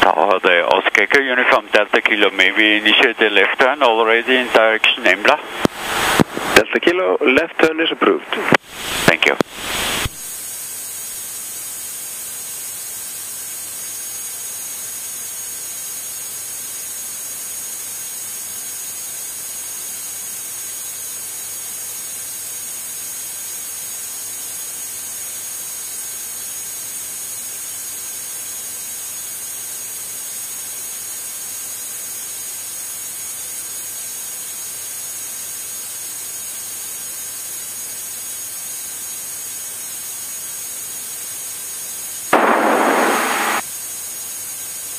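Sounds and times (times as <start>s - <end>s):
steady hiss: 38.1s - 44.8s
faint high whine: 42.3s - 43.6s.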